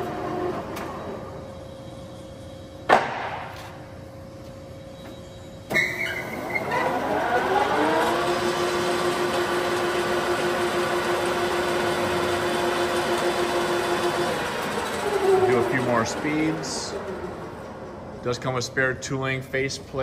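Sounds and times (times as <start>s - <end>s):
lathe spindle whine: 3.9s - 18.5s.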